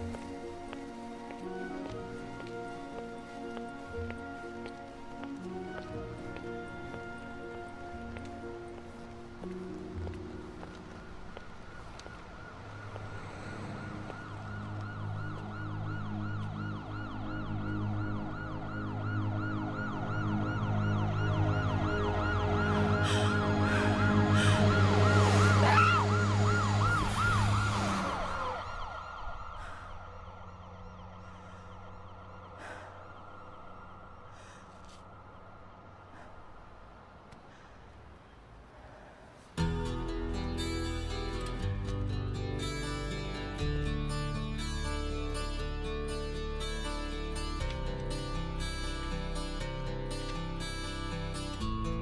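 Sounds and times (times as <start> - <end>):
emergency vehicle siren: 0.0 - 36.8, 42.6 - 51.8
low drone: 7.4 - 37.2.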